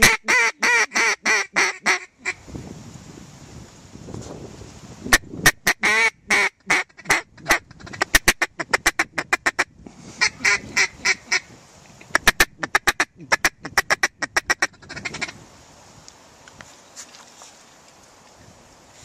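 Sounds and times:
duck call quacks: 0.0s - 2.4s, 5.1s - 11.4s, 12.1s - 15.4s.

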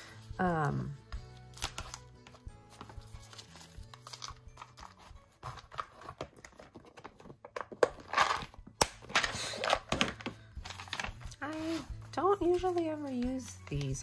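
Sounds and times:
paper sticker sheets rustling: 0.9s - 8.5s.

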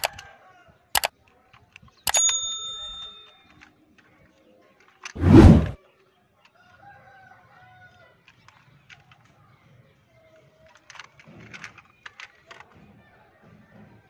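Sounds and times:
light plastic clicks: 10.7s - 12.6s.

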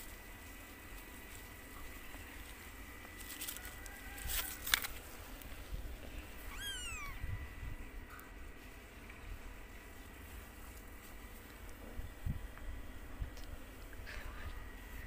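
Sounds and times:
kitten meowing: 6.4s - 7.3s.

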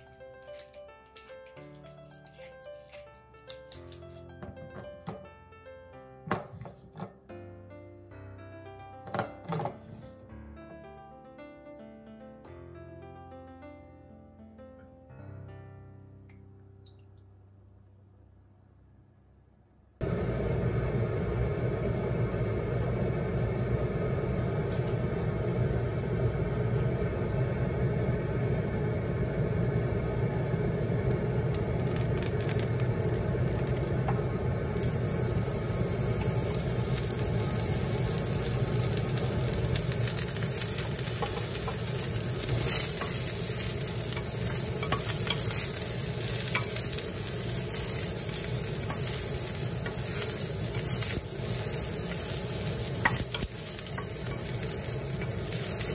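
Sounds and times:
low hum: 17.5s - 55.9s
mushrooms sizzling in oil: 30.8s - 55.9s.

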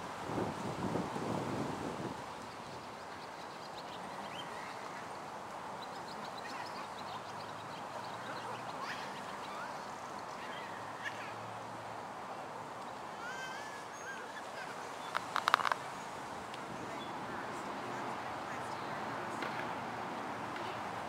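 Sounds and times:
small birds chirping: 2.4s - 11.4s, 12.8s - 19.5s.

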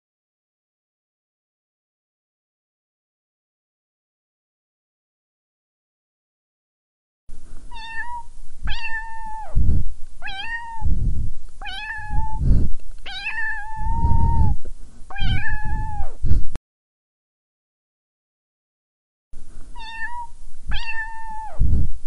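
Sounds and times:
low muffled rumbles: 7.3s - 16.6s, 19.4s - 22.0s
cat meowing: 7.7s - 9.6s, 10.2s - 10.9s, 11.6s - 12.4s, 13.1s - 16.2s, 19.8s - 21.6s.

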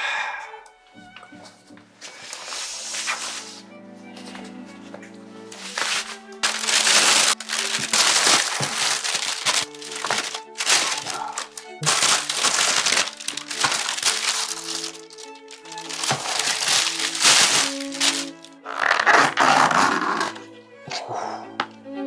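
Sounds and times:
light background music: 0.1s - 22.0s
plastic bag crinkling: 5.6s - 19.4s.

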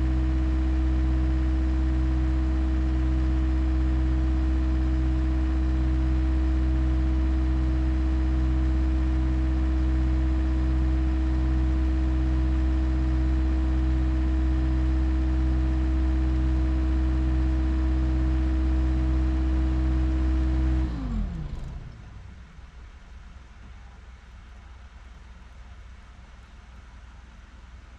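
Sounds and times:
machine engine idling: 20.8s - 24.5s.

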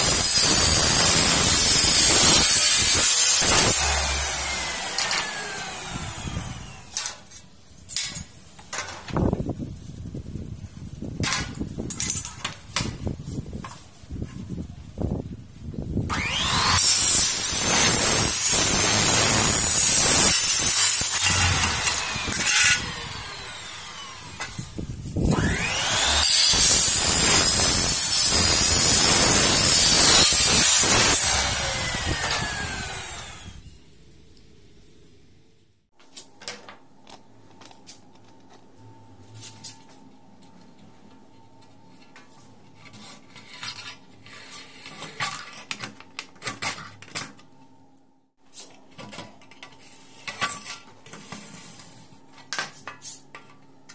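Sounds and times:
miter saw cutting metal: 0.0s - 7.2s, 16.1s - 33.7s.

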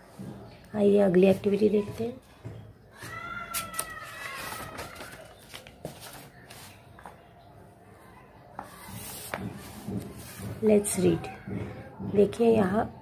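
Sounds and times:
paper pages rustling: 3.4s - 7.2s, 8.6s - 10.6s.

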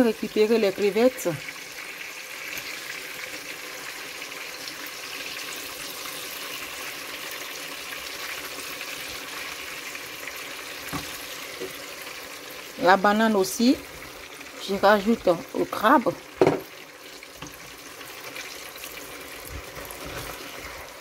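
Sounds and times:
seafood sizzling in hot oil: 0.0s - 21.0s
soft knock: 16.4s - 16.7s.

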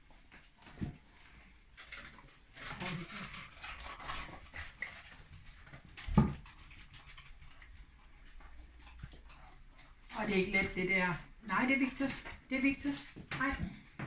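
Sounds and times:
dogs licking and smacking: 0.0s - 10.5s.

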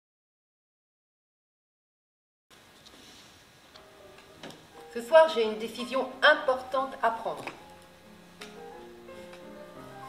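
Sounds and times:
faint room hiss: 2.5s - 10.0s.

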